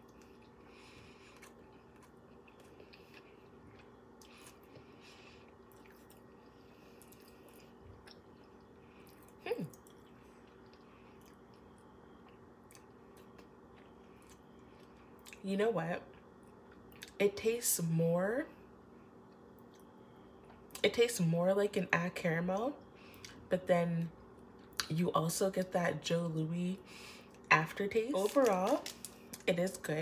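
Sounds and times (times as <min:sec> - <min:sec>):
faint chewing: 0:00.0 - 0:15.4
faint steady hum: 0:00.0 - 0:30.0.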